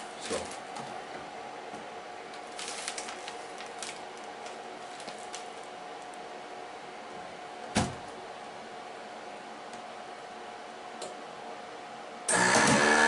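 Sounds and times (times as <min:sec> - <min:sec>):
plastic bag crinkling: 0:02.3 - 0:06.2.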